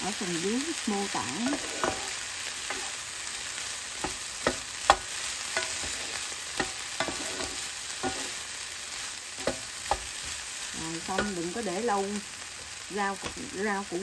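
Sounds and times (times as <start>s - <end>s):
fried rice sizzling in pan: 0.0s - 14.0s
spatula knocking against pan: 4.0s - 5.9s, 9.4s - 10.1s.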